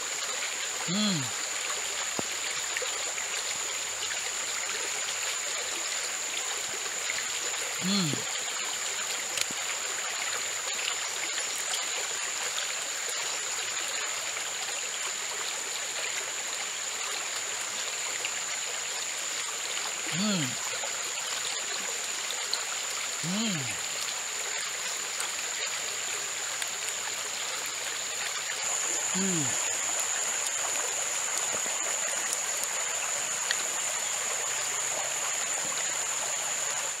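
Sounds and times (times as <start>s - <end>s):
stream running over rocks: 0.0s - 37.0s
faint small clicks: 9.3s - 9.6s.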